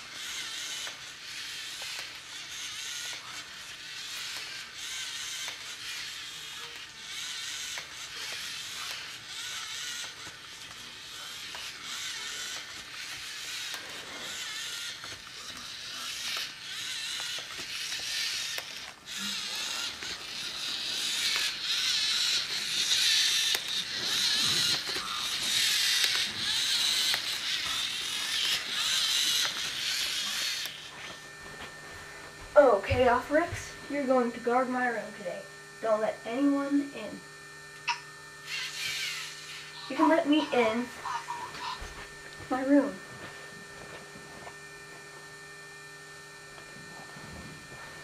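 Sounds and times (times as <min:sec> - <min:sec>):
robot legs clicking and creaking: 0:00.0 - 0:31.2
servo motors and gears whirring: 0:00.0 - 0:45.4.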